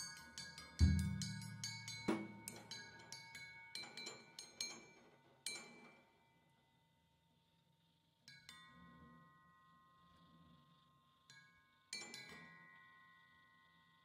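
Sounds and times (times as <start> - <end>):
metallic cymbal strokes: 0.0 - 3.6
deep drum hit: 0.8 - 1.3.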